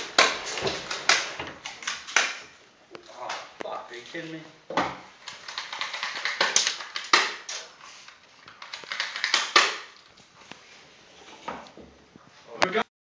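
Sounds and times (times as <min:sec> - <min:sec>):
pellets hitting walls and furniture: 0:00.0 - 0:03.6, 0:04.7 - 0:10.1
airsoft guns firing: 0:08.8 - 0:10.0.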